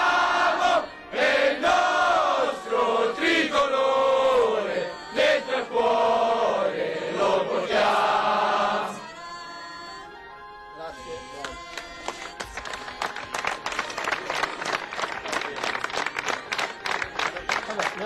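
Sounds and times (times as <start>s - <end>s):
group singing chanted military song: 0.0s - 9.1s.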